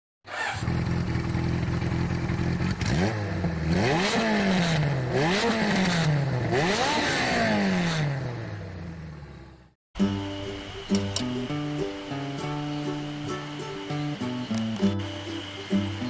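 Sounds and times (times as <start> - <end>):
motorcycle engine idling and revving: 0.2 - 9.8.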